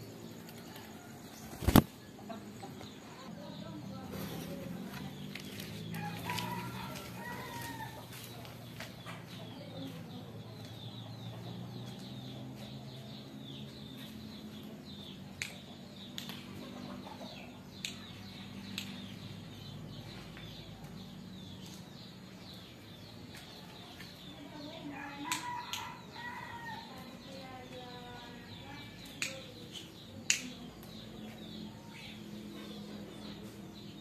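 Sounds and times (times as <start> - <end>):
small birds chirping: 0.0 - 34.0
sharp clicks: 29.0 - 31.0.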